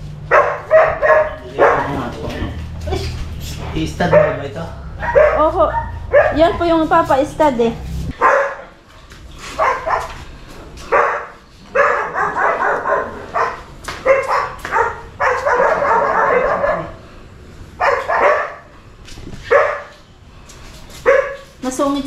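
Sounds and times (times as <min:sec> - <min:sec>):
dog barking: 0:00.3 - 0:02.2, 0:04.0 - 0:06.8, 0:08.1 - 0:08.8, 0:09.5 - 0:10.2, 0:10.9 - 0:17.0, 0:17.8 - 0:18.7, 0:19.4 - 0:20.0, 0:21.0 - 0:21.5.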